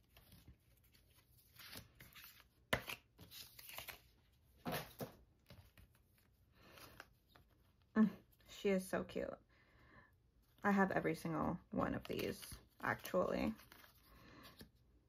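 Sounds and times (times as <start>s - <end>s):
paper cards rustling: 0.0s - 7.9s, 11.7s - 14.8s.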